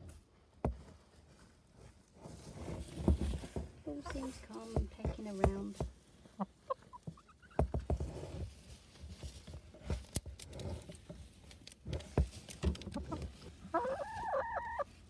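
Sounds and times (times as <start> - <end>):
hens scratching in straw: 0.0 - 15.0
hen calling: 13.6 - 14.9.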